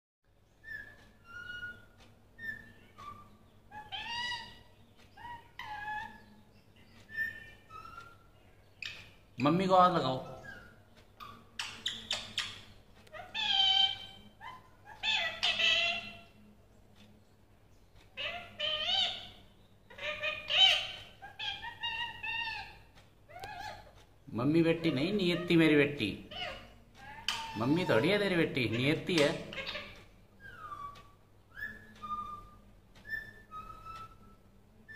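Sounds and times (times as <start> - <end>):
parakeet calling: 0.5 - 16.5, 18.1 - 34.9
parakeet mimicking speech: 13.2 - 14.2, 14.9 - 16.3, 24.7 - 30.0.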